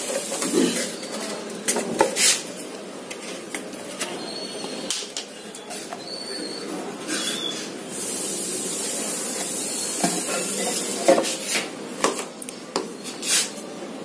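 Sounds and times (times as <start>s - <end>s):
steady hiss: 7.8s - 11.7s.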